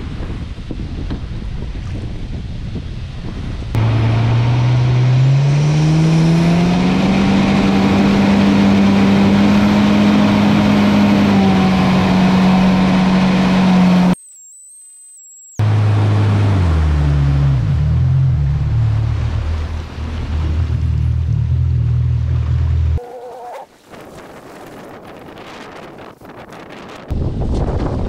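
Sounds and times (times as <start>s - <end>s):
wind: 0.0s - 28.0s
boat motor speeding up: 3.7s - 14.2s, 15.6s - 23.7s
water spraying off hull: 15.7s - 22.9s.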